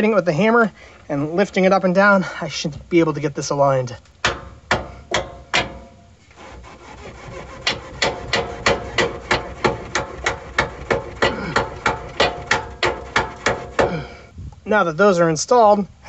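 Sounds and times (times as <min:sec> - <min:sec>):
hammer striking steel: 0:04.2 - 0:06.0, 0:07.7 - 0:14.0.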